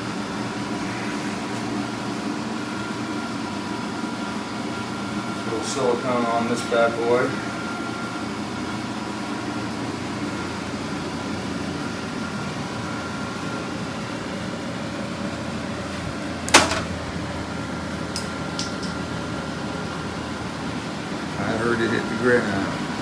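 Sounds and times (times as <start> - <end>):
air conditioner humming: 0.0 - 23.0
small part hitting floor: 16.5 - 16.9.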